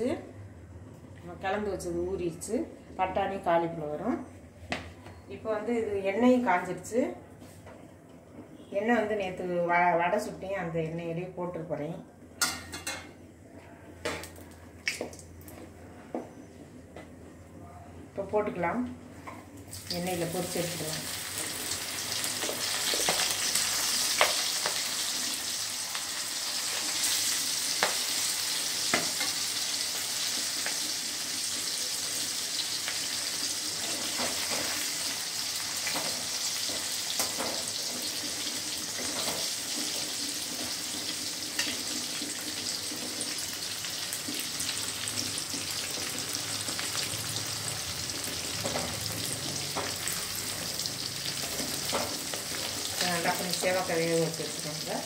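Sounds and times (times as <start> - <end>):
deep-frying oil sizzling and bubbling: 19.6 - 55.0.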